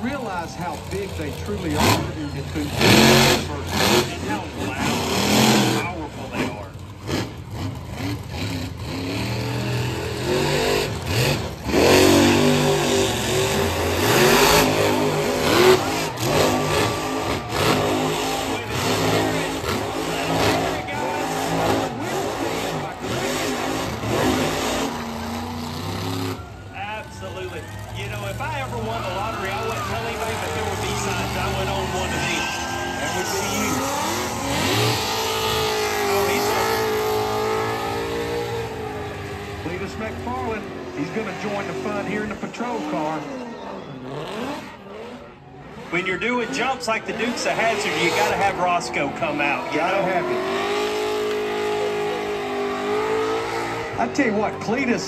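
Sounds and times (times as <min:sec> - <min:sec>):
monster truck engine revving: 0:00.0 - 0:55.0
tyres squealing: 0:08.3 - 0:44.6.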